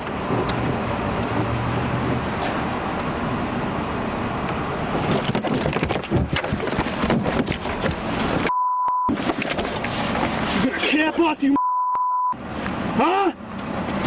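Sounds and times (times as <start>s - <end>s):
high steady beep: 8.5s - 9.1s, 11.6s - 12.4s
scuffling against microphone: 9.1s - 11.0s.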